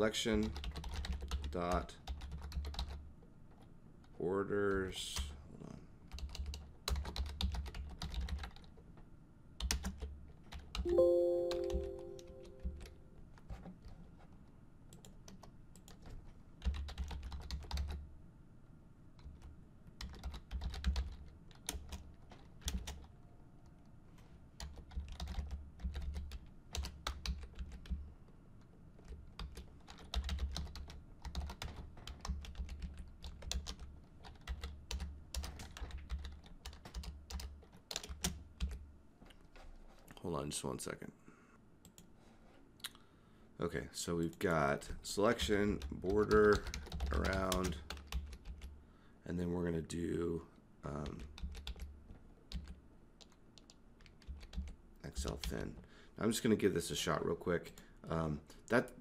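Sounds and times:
computer keyboard typing: 0.4s - 3.0s, 6.1s - 8.8s, 9.6s - 12.9s, 14.9s - 18.0s, 19.2s - 23.1s, 24.6s - 28.0s, 29.0s - 38.8s, 45.7s - 48.7s, 50.9s - 55.6s
short chime: 10.9s - 13.0s.

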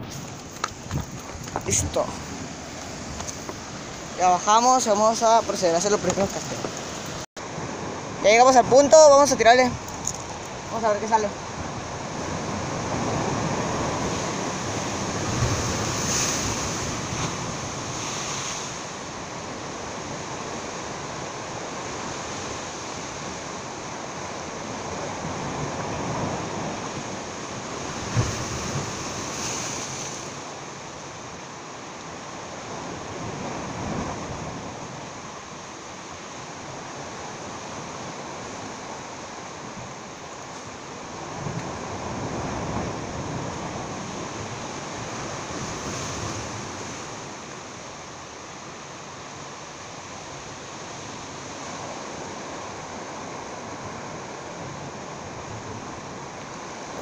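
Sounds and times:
surf breaking on rocks: 0.0s - 23.4s, 24.6s - 30.7s
wind buffeting microphone: 0.0s - 30.3s.

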